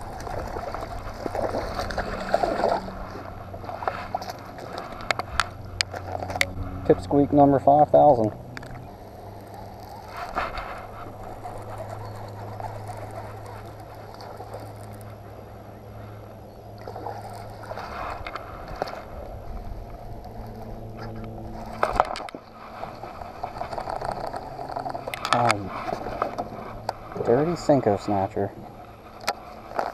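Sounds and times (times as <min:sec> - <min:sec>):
electric motor humming low: 0:00.0 - 0:29.9
fishing reel rattles: 0:03.8 - 0:15.2, 0:19.6 - 0:28.4.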